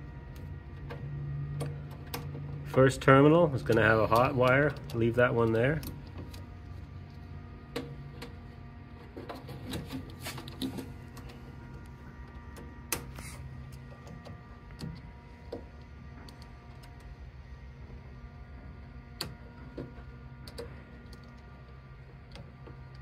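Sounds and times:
steady low hum: 0.0 - 23.0
screwdriver clicking and scraping: 12.9 - 14.2.

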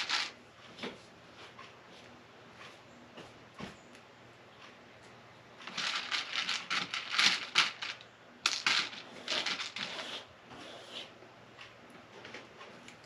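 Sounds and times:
plastic pieces clattering in a dish: 0.0 - 0.4, 5.7 - 9.9.

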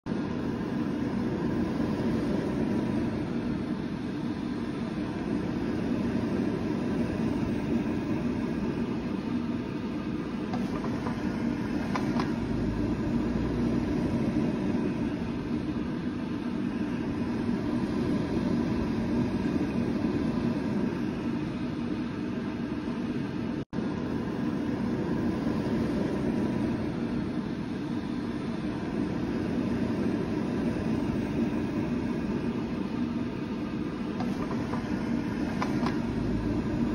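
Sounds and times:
air fryer fan whirring: 0.0 - 36.9.

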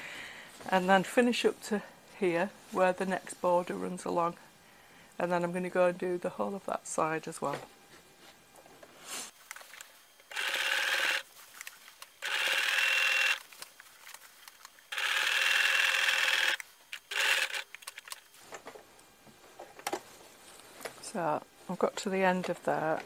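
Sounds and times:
electric sewing machine running: 10.3 - 11.3, 12.2 - 13.4, 14.8 - 18.2.

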